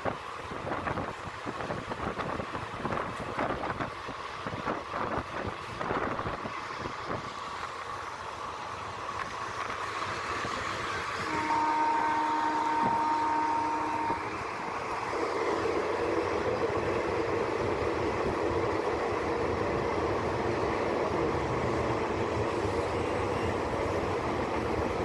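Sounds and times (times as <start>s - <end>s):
train rail and wheel noise: 0.0s - 25.0s
multi-pitch train horn tone: 11.1s - 14.5s.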